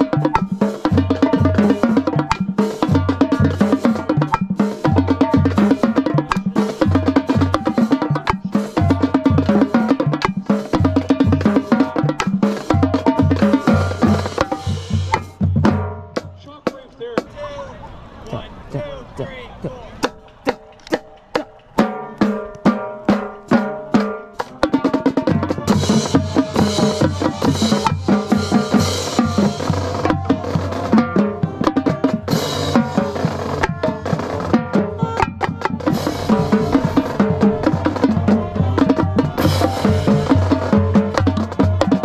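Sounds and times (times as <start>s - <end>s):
marching band playing: 0.0s - 42.0s
tenor drum strokes: 20.0s - 42.0s.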